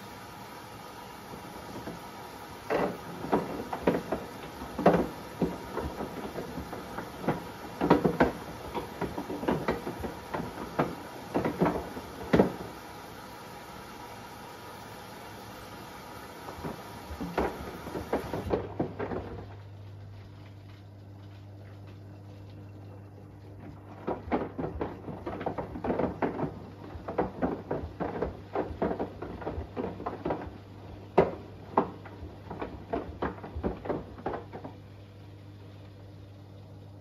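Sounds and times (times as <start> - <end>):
washing machine hum: 0.0 - 37.0
phone knocking in washing machine: 2.7 - 12.8, 16.5 - 19.5, 23.6 - 34.8.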